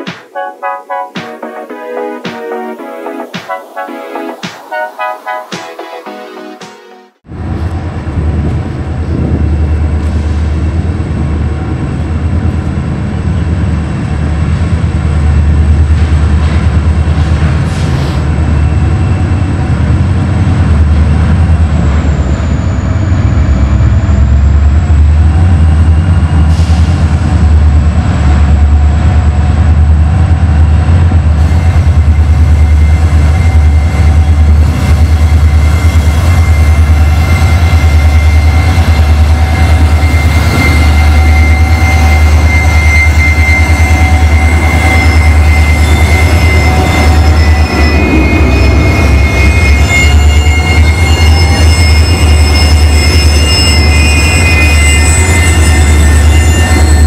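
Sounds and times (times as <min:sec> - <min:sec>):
diesel locomotive engine rumble: 0:07.2 - 0:57.0.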